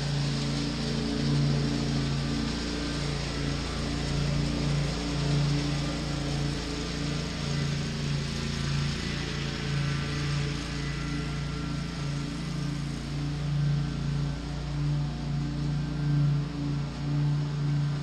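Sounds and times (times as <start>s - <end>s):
riding mower engine running: 0.0s - 18.0s.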